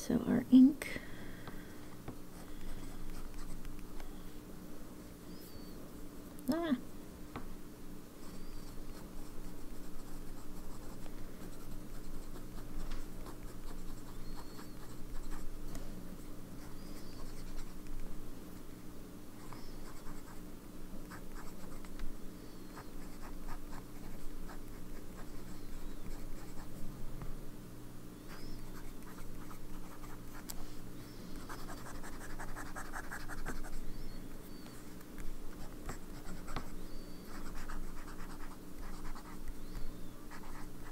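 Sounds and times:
pen nib scratching paper: 2.3 - 3.7, 8.2 - 15.5, 16.6 - 17.9, 19.4 - 20.4, 21.0 - 21.9, 22.8 - 26.8, 28.3 - 30.5, 31.4 - 33.8, 35.6 - 36.7, 37.3 - 39.5, 40.3 - 40.9.

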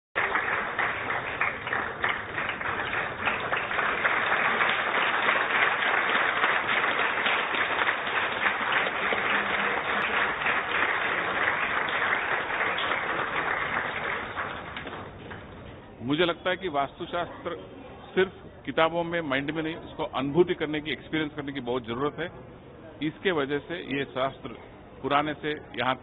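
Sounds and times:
audience applauding: 0.2 - 15.5.

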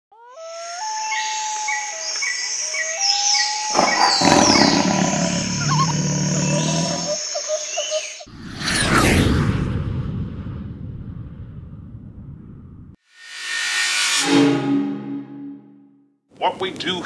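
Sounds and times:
birds calling with whistles: 0.4 - 8.3
bird chirping: 1.1 - 8.3
deep animal roar: 3.7 - 7.2.

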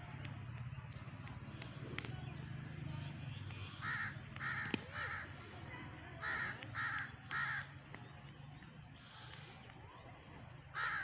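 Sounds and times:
crow cawing: 3.8 - 5.4, 6.2 - 7.7, 10.7 - 11.0.

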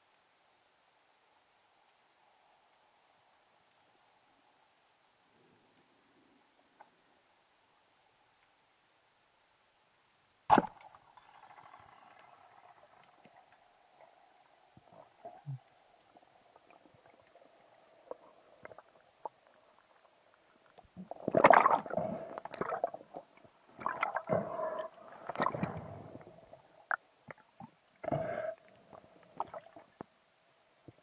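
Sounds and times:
faint steady hum: 0.0 - 31.0
speargun firing underwater: 10.5 - 11.0
rushing gurgling water: 21.0 - 27.4.

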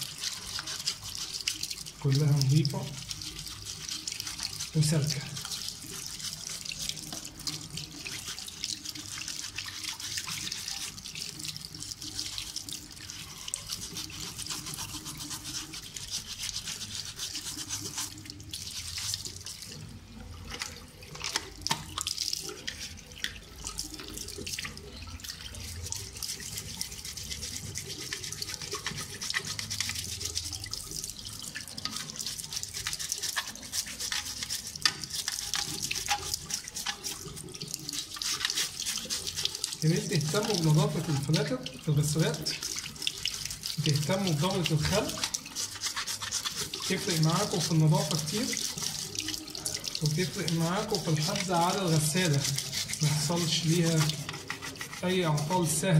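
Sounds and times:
toothbrush scrubbing plastic filter: 0.0 - 55.9
water splashing into sink: 0.0 - 55.9.

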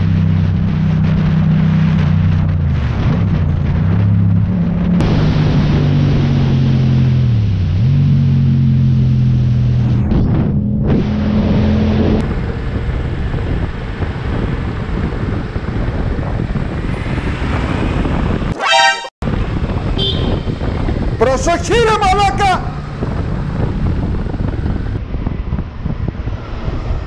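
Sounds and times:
city traffic: 0.0 - 27.0
wind rush: 12.2 - 18.6, 19.2 - 27.0
loud horn blast: 18.6 - 19.1.

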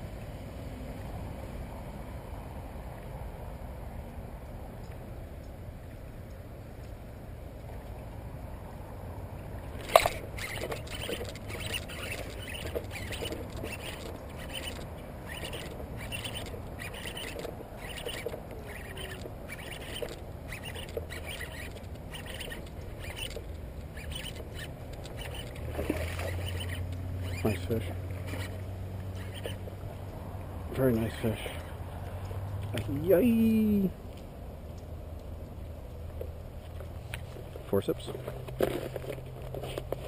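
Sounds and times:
fishing reel and rod pulses: 9.6 - 33.9.

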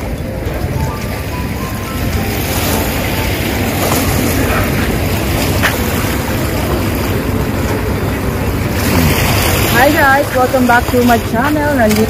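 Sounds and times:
small waves lapping: 0.0 - 12.0.

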